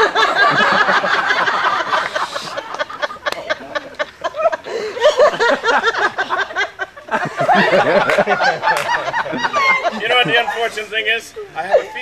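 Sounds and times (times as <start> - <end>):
audience laughing: 0.0 - 12.0.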